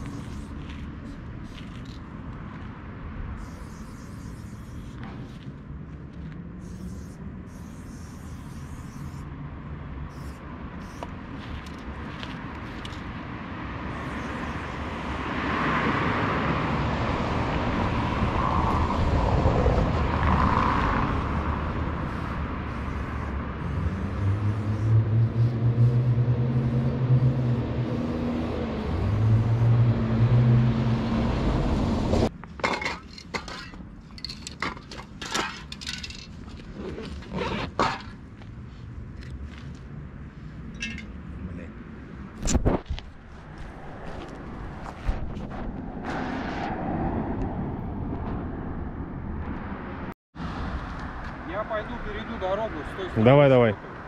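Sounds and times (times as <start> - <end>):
vehicle engine humming: 0.0 - 32.6, 33.2 - 54.0.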